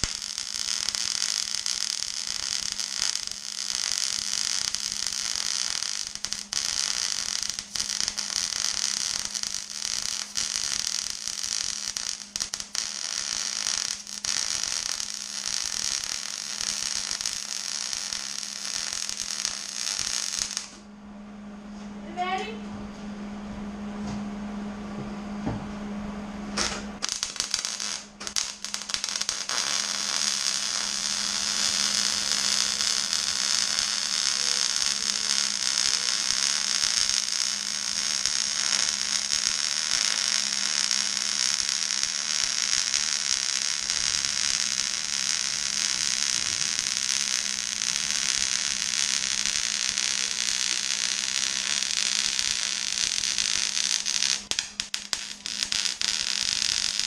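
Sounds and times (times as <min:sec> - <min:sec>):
welder arc crackling and hissing: 0:00.0 - 0:20.9, 0:26.5 - 0:57.0
steady low hum: 0:00.0 - 0:57.0.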